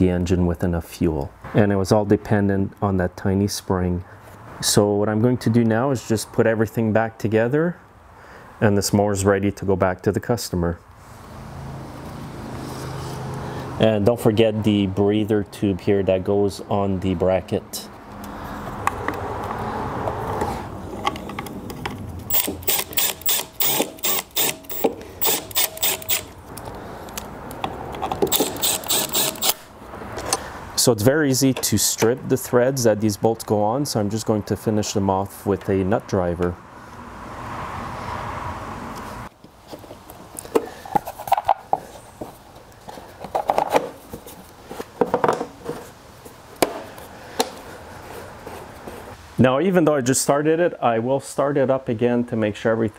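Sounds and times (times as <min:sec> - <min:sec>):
cordless driver spinning bolts: 0:22.3 - 0:26.4, 0:28.0 - 0:29.7
sharp clicking: 0:22.3 - 0:27.6.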